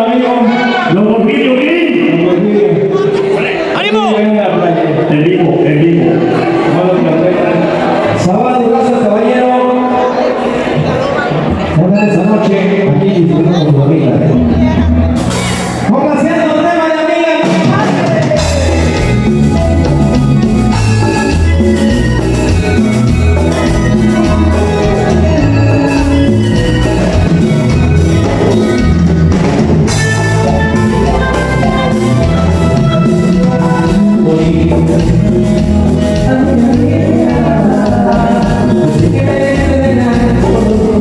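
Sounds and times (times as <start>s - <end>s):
man singing: 0.0s - 10.3s, 23.3s - 28.9s, 29.9s - 41.0s
keyboard: 0.0s - 41.0s
live band latin dance music: 0.0s - 41.0s
bass: 10.7s - 16.8s, 17.4s - 41.0s
drum kit: 14.4s - 41.0s
electric guitar: 17.3s - 41.0s.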